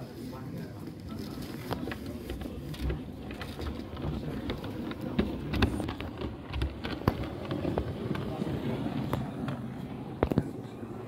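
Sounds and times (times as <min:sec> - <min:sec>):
wheels clicking over rail joints: 0:01.6 - 0:09.7
model train rumbling on track: 0:01.8 - 0:09.8.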